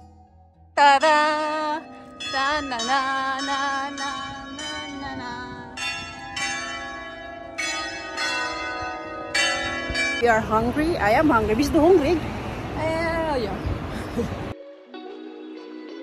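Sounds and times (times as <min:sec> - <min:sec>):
church bells ringing: 0:01.0 - 0:12.2.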